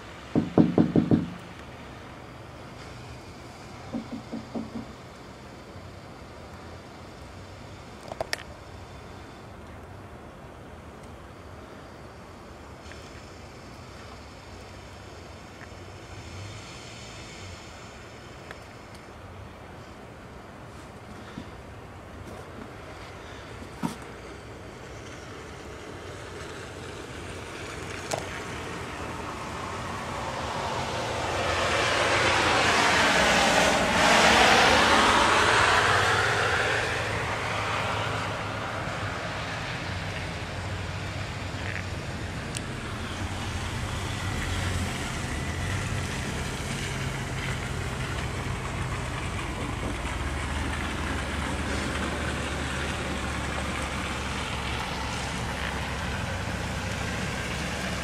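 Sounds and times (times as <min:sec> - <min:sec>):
low engine hum of traffic: 0:00.0 - 0:58.0
tyres hissing through snow: 0:11.4 - 0:19.0, 0:19.7 - 0:58.0.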